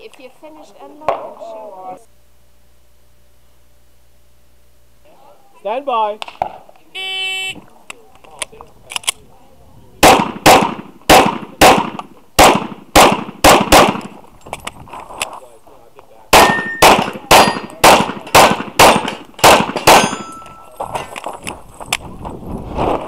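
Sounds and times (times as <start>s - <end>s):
pistol shots: 10.0s - 14.2s, 16.3s - 20.5s.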